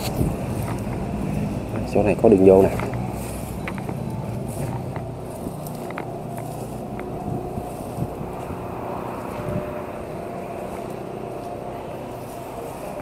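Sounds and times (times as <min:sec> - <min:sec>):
wind on microphone: 0:00.0 - 0:01.3, 0:03.6 - 0:11.0
footsteps through tall grass: 0:00.0 - 0:13.0
outdoor background rumble: 0:00.0 - 0:13.0.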